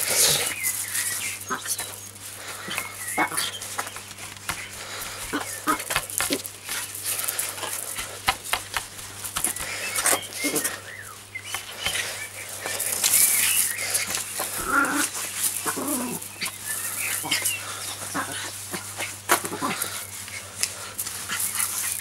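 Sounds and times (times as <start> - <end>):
broom scraping on stone paving: 0.0 - 22.0
small dog vocalising: 2.6 - 3.7, 5.2 - 6.4, 14.0 - 20.6.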